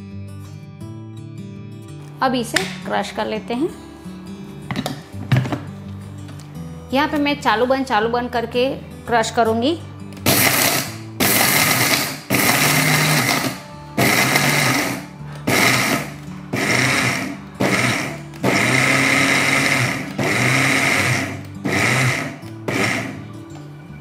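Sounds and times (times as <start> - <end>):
mixer grinder grinding seeds: 10.3 - 23.3.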